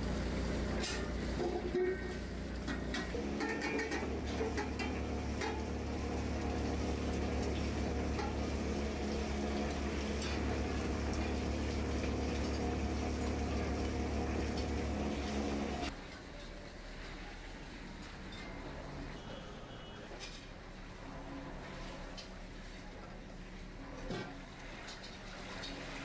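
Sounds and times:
low workshop hum: 0:00.0 - 0:26.0
metal pots clinking: 0:00.8 - 0:06.0, 0:07.4 - 0:09.2, 0:09.8 - 0:12.2.

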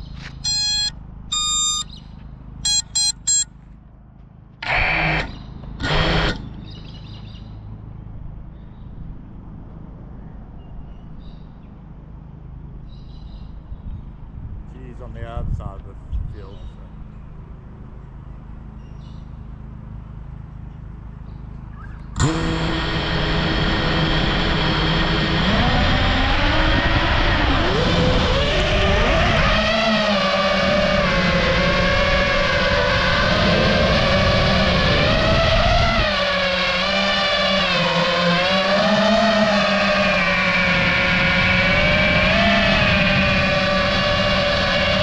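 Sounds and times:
noisy bursts: 0:00.0 - 0:01.8, 0:04.6 - 0:06.6, 0:22.2 - 0:45.0
quadcopter electronic beeps: 0:00.0 - 0:02.0, 0:02.6 - 0:03.5, 0:22.2 - 0:45.0
drone motors whining: 0:00.0 - 0:03.5, 0:04.6 - 0:07.7, 0:20.0 - 0:45.0
low steady rumble: 0:00.0 - 0:45.0.

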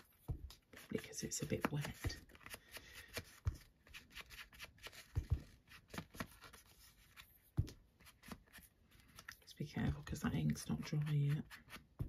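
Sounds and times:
paper rustling and scratching: 0:00.0 - 0:09.4.

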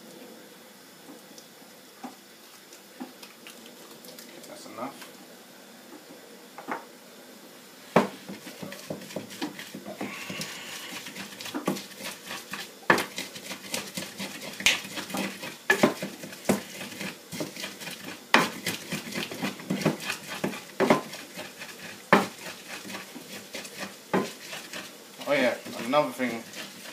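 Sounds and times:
wooden pestle knocking and scraping: 0:08.0 - 0:26.9.

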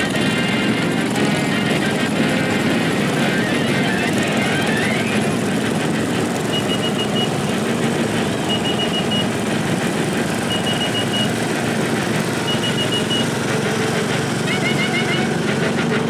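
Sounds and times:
small tractor engines running: 0:00.0 - 0:16.0
high electronic beeping: 0:06.5 - 0:07.4, 0:08.4 - 0:09.3, 0:10.4 - 0:11.4, 0:12.4 - 0:13.3, 0:14.5 - 0:15.4.

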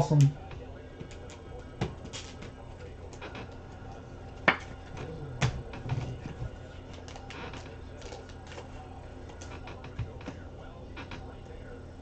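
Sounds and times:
foil pack crinkling: 0:05.8 - 0:10.3.

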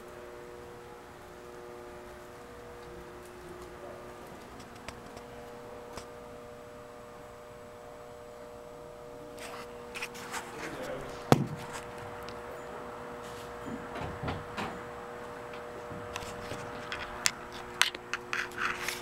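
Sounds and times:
steady low hum: 0:00.0 - 0:19.0
rustling and knocking: 0:11.3 - 0:12.0.

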